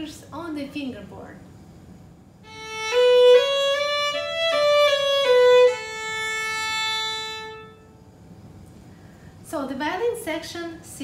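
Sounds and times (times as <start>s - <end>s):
violin bowed notes: 2.4s - 8.0s.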